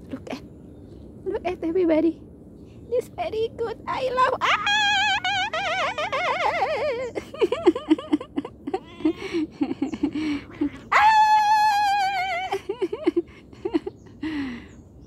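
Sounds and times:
cat meowing: 8.7s - 9.4s.

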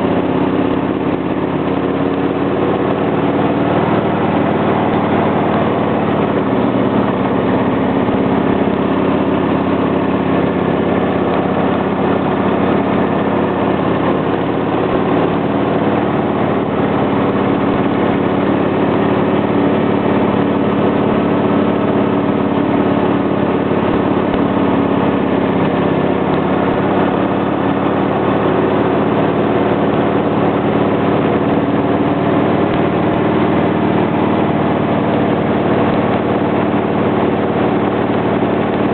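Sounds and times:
motorcycle engine running: 0.0s - 38.9s.

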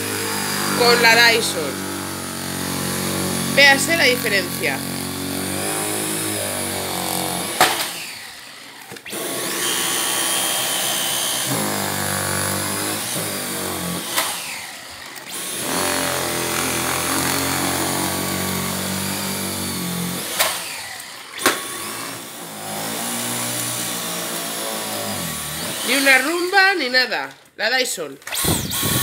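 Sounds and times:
vacuum cleaner running: 0.0s - 27.0s, 28.3s - 29.0s.

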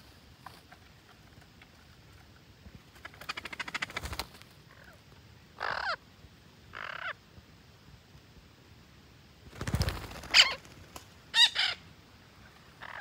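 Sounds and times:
parrot squawks: 11.3s - 11.8s.

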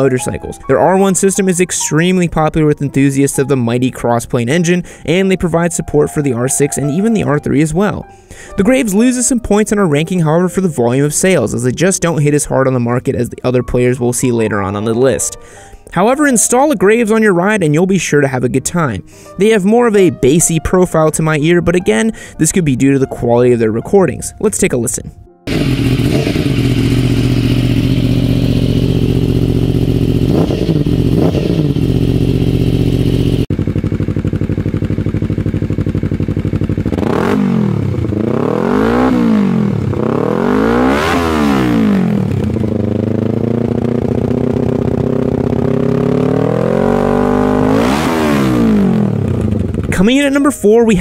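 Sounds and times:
motorcycle engine idling: 25.5s - 48.0s, 48.7s - 50.2s
motorcycle throttle blips: 25.5s - 50.1s
motorcycle engine revving: 25.5s - 50.2s.

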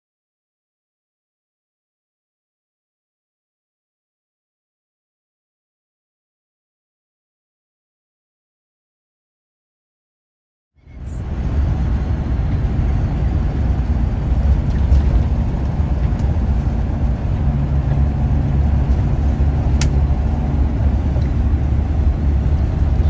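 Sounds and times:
vehicle road rumble: 10.8s - 23.0s.

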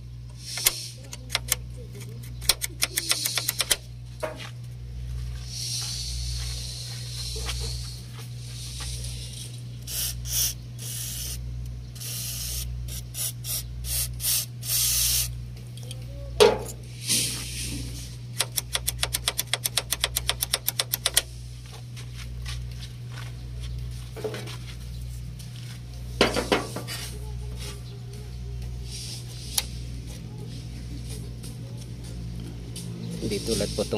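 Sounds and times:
steady low hum: 0.0s - 33.9s
fast run of clicks: 0.6s - 3.8s, 18.4s - 21.3s
aerosol can spraying: 9.9s - 11.4s, 12.0s - 15.3s.

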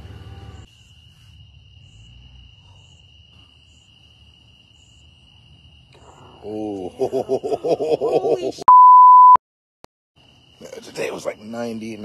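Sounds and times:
crickets trilling: 0.4s - 8.5s, 10.2s - 12.0s
faint high insect chirp: 0.5s - 7.2s, 10.2s - 12.0s.

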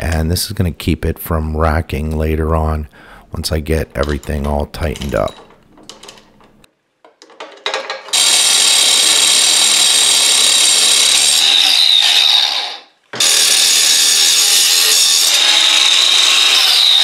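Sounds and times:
angle grinder cutting steel: 8.1s - 17.0s.

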